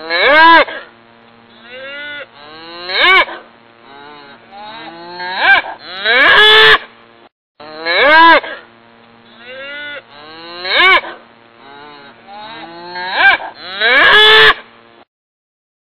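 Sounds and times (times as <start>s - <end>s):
bull mooing: 1.5s - 6.8s, 7.6s - 8.6s, 9.3s - 14.6s.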